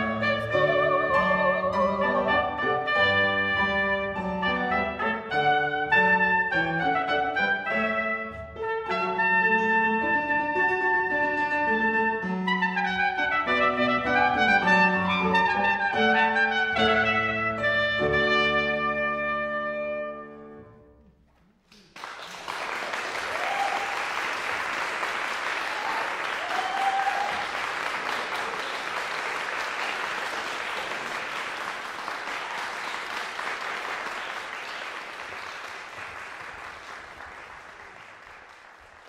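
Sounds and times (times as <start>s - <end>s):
trumpet and piano note ringing: 2.1s - 20.9s
audience applause: 21.6s - 39.0s.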